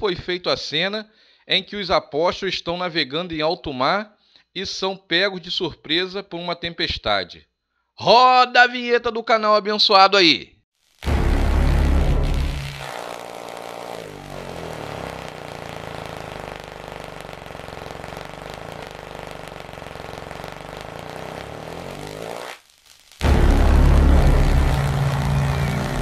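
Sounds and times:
droning held tones: 11.0 - 26.0
pitch sweep: 11.0 - 26.0
low rumble: 11.1 - 12.9, 23.2 - 26.0.

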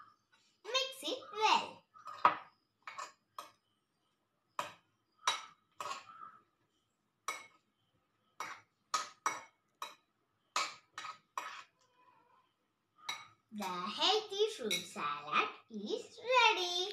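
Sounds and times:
metal spoon clinking glass bowl: 2.0 - 3.6, 4.6 - 6.1, 7.2 - 7.6, 8.4 - 11.8, 13.0 - 13.8, 14.6 - 15.0.

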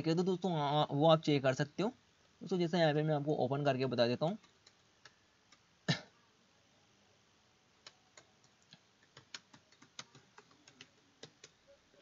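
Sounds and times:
keyboard keystrokes: 7.8 - 11.6.

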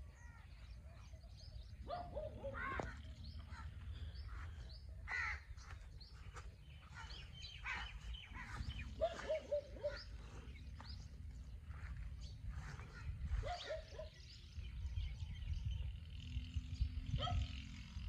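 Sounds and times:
small birds chirping: 0.0 - 17.7
crows cawing: 2.6 - 5.8, 6.9 - 8.8
wind rumble on microphone: 10.1 - 18.0.

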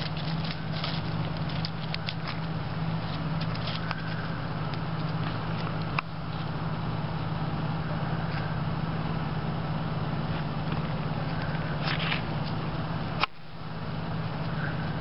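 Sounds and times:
rushing background noise: 0.0 - 15.0
steady low hum: 0.0 - 15.0.

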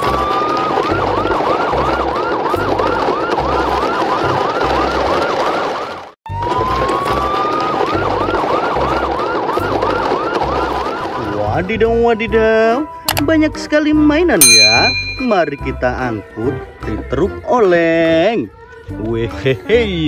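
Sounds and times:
electronic siren wail and yelp: 0.0 - 12.8.

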